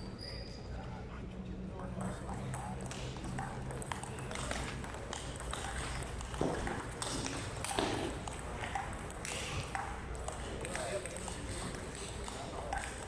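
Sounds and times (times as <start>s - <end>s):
table tennis ball clicking: 2.4s - 13.0s.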